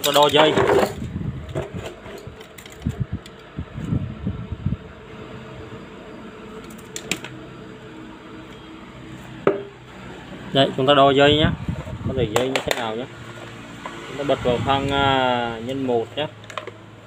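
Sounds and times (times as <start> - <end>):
knocks and rustles of wiring: 0.0 - 3.9, 6.6 - 7.4, 11.7 - 14.0
steady low hum: 1.0 - 17.0.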